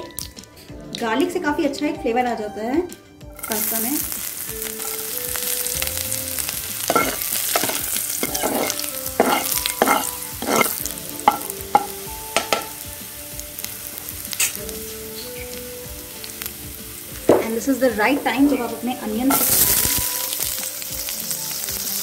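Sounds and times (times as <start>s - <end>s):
garlic sizzling in oil: 3.3s - 22.0s
ladle scraping pan: 6.9s - 11.9s.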